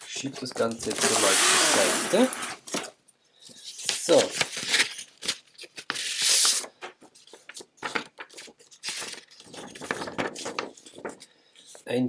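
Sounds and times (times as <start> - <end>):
thick paper rustling and crinkling: 3.6 - 11.9.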